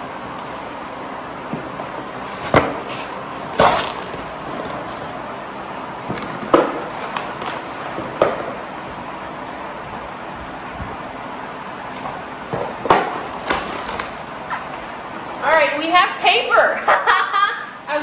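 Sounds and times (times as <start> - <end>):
packing tape tearing: 13.2 - 14.2.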